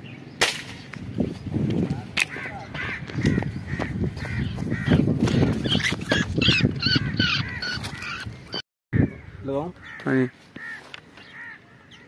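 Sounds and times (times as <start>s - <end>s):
wild birds calling: 0.0s - 12.0s
footsteps in dry grass: 1.0s - 6.4s, 10.0s - 11.6s
rustling of dry leaves: 10.0s - 11.9s.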